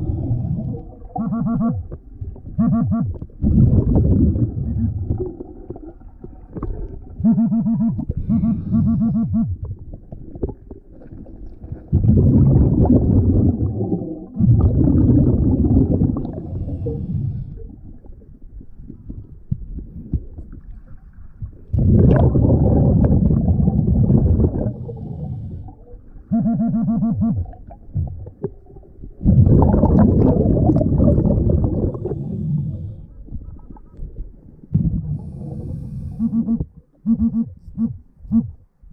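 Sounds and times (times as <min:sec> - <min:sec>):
diver exhaling bubbles underwater: 0:00.0 - 0:37.6
scuba regulator breathing: 0:08.0 - 0:09.5, 0:16.2 - 0:17.7, 0:24.4 - 0:25.8, 0:31.6 - 0:33.3, 0:35.0 - 0:36.7
short rapid buzzing tone: 0:36.2 - 0:38.5.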